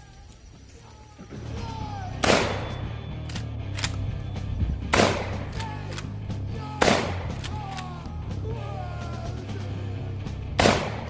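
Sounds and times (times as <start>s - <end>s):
shotgun shots: 2.2s - 4.0s, 4.9s - 6.1s, 6.8s - 7.8s, 10.6s - 11.0s.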